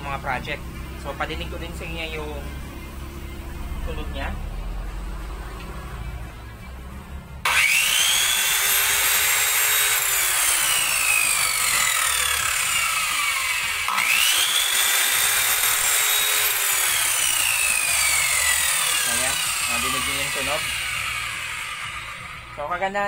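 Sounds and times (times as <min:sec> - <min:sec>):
circular saw motor whining: 0:07.4 - 0:23.0.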